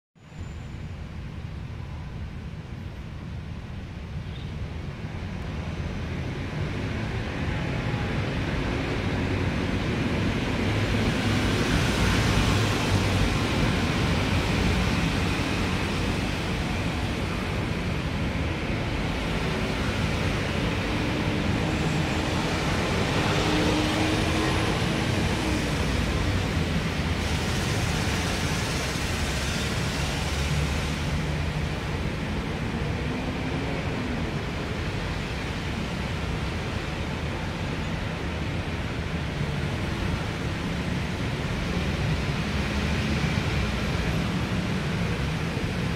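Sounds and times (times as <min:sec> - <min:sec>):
hiss: 0:27.2 - 0:31.3.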